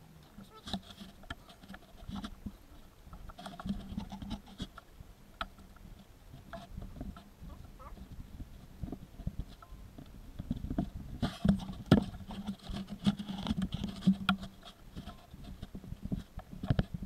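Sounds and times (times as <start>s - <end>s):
belt and gloved hands rubbing: 0.3s - 4.9s, 6.4s - 8.2s.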